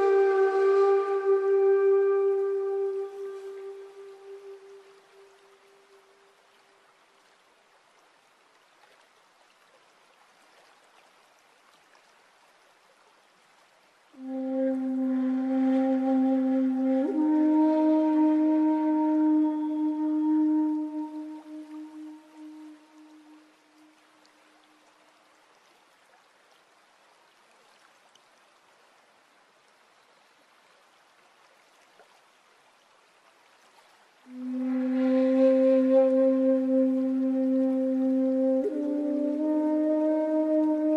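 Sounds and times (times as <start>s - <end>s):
held flute note: 0.0s - 6.2s, 14.2s - 24.7s, 34.3s - 40.9s
stream trickling over rocks: 0.0s - 40.9s.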